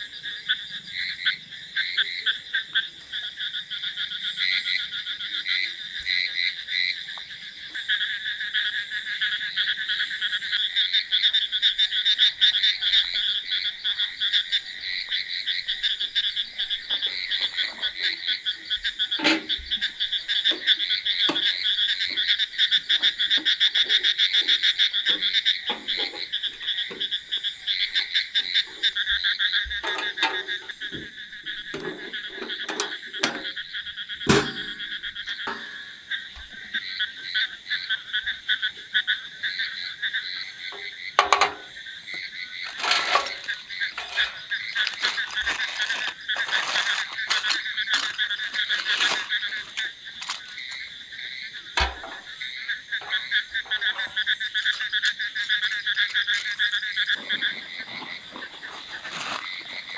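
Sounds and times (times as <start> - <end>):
frogs calling: 0.0 - 59.9
metal grill parts clinking: 29.8 - 30.7, 31.6 - 33.6, 34.3 - 35.8, 41.2 - 41.7, 42.6 - 50.7.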